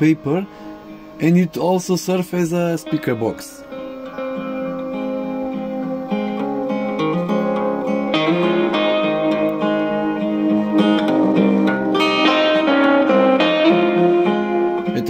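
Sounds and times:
guitar music through small amplifier: 0:00.0 - 0:15.0.

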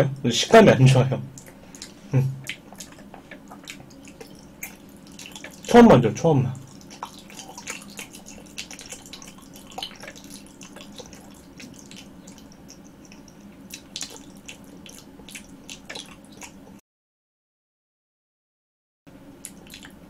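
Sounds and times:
wet chewing clicks and smacks: 0:01.3 - 0:05.8, 0:06.6 - 0:16.8, 0:19.4 - 0:20.0.

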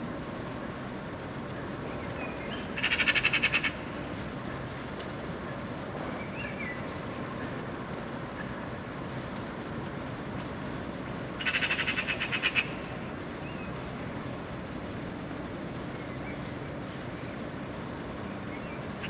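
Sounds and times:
low background hum: 0:00.0 - 0:19.0
magpie chattering rattle: 0:02.6 - 0:03.8, 0:11.4 - 0:12.8.

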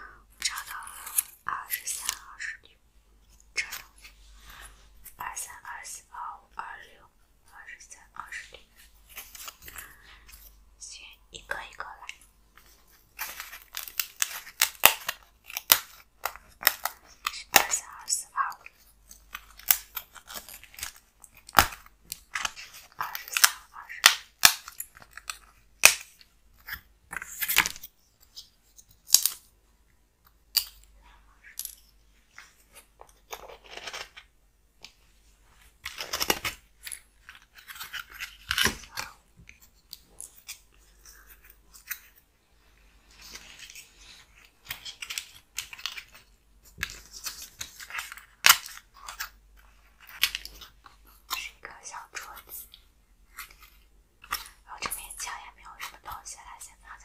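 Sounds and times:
foam pieces crackling and clicking: 0:13.2 - 0:17.8.

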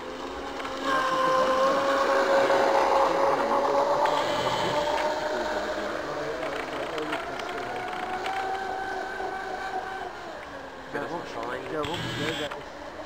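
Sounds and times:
model boat motor whining: 0:00.0 - 0:13.0.

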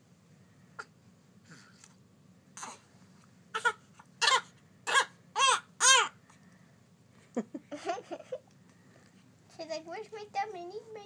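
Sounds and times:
newborn baby crying: 0:03.5 - 0:06.2.

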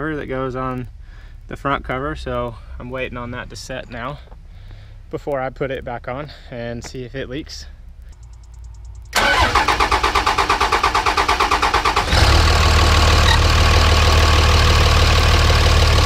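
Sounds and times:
diesel engine cranking and idling: 0:09.1 - 0:16.0.

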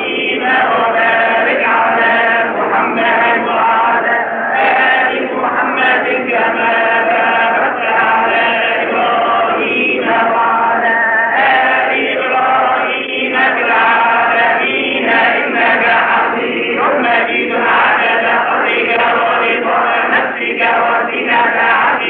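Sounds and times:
men chanting a devotional melody: 0:00.0 - 0:22.0.

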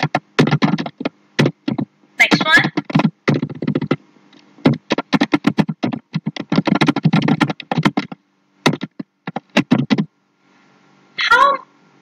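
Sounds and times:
computer keyboard typing: 0:00.0 - 0:04.0, 0:04.6 - 0:10.1.

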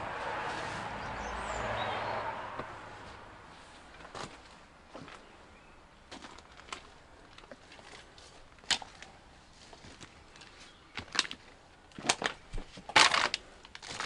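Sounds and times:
brushing through undergrowth: 0:00.0 - 0:01.6
footsteps crunching over debris: 0:03.6 - 0:05.4, 0:06.1 - 0:14.0.

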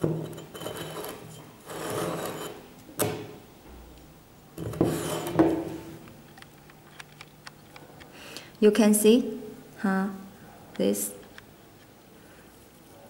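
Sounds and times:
steel plates scraping on wood: 0:00.0 - 0:02.7, 0:04.6 - 0:05.8.

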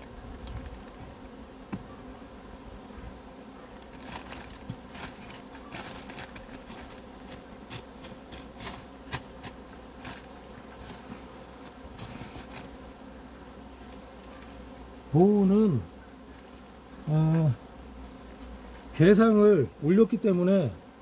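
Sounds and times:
honeybees buzzing: 0:00.0 - 0:21.0
plastic film crinkling: 0:03.8 - 0:08.8.

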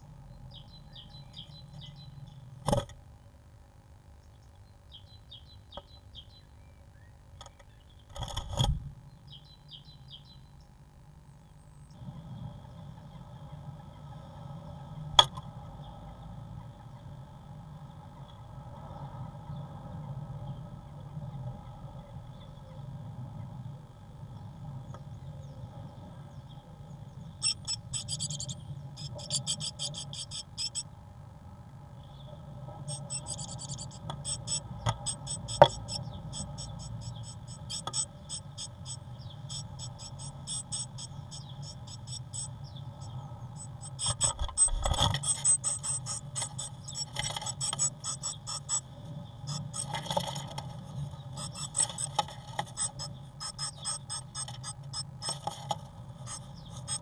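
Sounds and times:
low steady hum: 0:00.0 - 0:57.0
bird clicking and scratching: 0:07.4 - 0:08.8, 0:27.4 - 0:30.8, 0:32.8 - 0:57.0.

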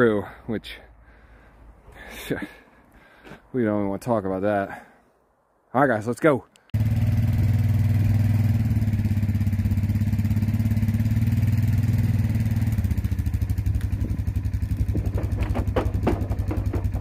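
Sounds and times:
four-wheeler engine running under load: 0:06.8 - 0:17.0
short knocks: 0:14.7 - 0:17.0.

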